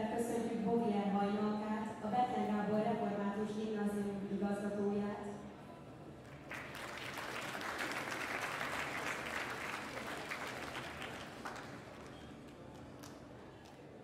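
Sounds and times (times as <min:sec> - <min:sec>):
audience applauding: 0:06.3 - 0:13.2.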